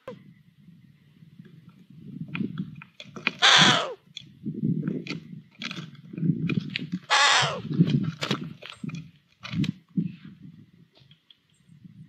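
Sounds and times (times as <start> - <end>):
owlets hissing begging calls: 3.4 - 4.0, 7.1 - 7.6.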